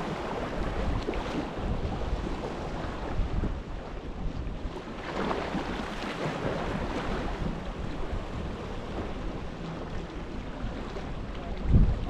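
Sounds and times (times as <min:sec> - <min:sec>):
sea waves washing in: 0:00.0 - 0:12.0
wind buffeting microphone: 0:00.0 - 0:12.0.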